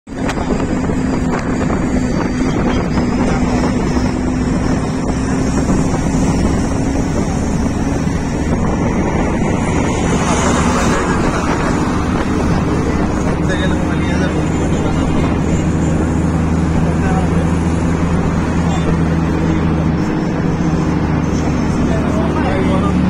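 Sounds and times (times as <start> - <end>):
road noise: 0.0 - 23.0
vehicle engine hum: 0.0 - 23.0
wind noise on microphone: 0.1 - 23.0.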